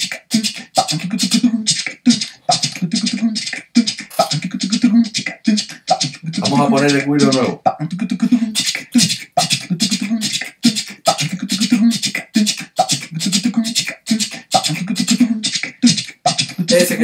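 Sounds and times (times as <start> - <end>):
mouth scraping chichi sounds: 0.0 - 17.0
vocal percussion: 0.0 - 17.0.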